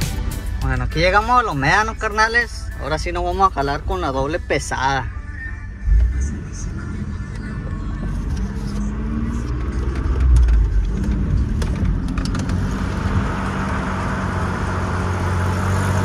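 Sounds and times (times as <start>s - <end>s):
truck engine pulling under load: 9.2s - 16.0s.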